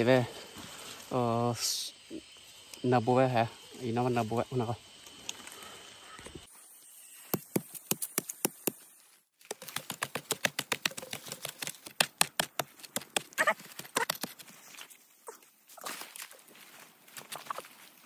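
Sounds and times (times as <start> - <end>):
machete chopping bamboo: 9.4 - 14.4.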